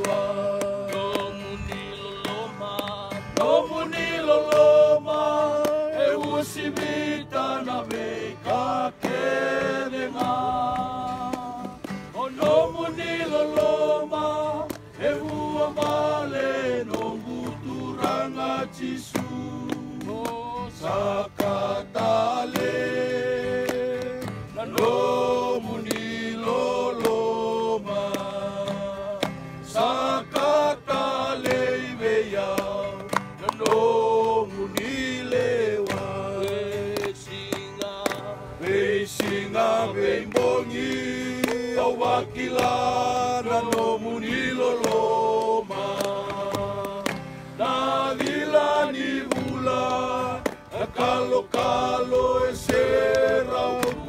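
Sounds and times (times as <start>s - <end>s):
group singing a hymn: 0.0s - 54.0s
strummed guitar: 0.0s - 54.0s.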